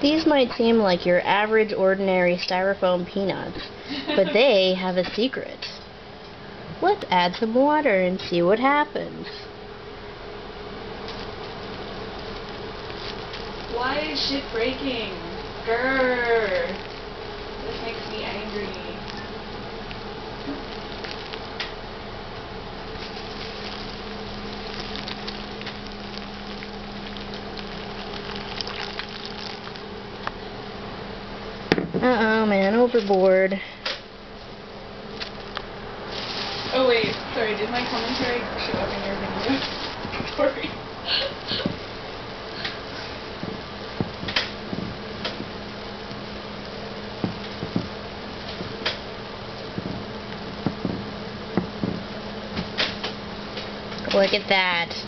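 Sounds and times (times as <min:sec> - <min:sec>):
faint low hum: 0:00.0 - 0:55.0
steady hiss: 0:00.0 - 0:55.0
packing peanuts crackling: 0:10.8 - 0:30.4, 0:35.1 - 0:40.5
wet squelches and pops: 0:11.0 - 0:14.7, 0:15.3 - 0:21.8, 0:22.9 - 0:30.4, 0:35.1 - 0:35.7
water pouring onto packing peanuts: 0:11.1 - 0:21.6, 0:22.7 - 0:30.0, 0:36.1 - 0:40.4.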